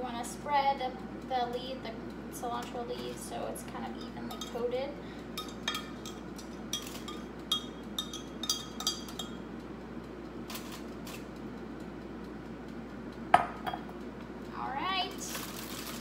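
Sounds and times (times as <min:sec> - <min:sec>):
utensil clinking against glass cup: 0:06.8 - 0:09.4.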